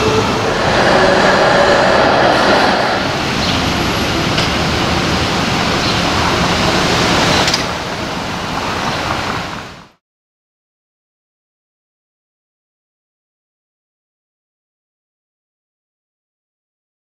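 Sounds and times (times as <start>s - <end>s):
streetcar passing on rails: 0.0s - 9.9s.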